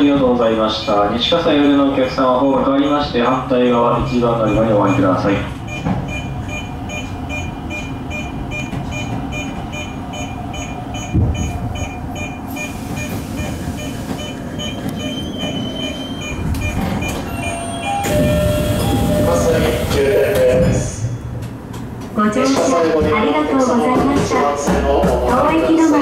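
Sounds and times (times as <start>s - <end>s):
train low rumble: 0.0s - 26.0s
rapid electronic beeping: 0.7s - 20.3s.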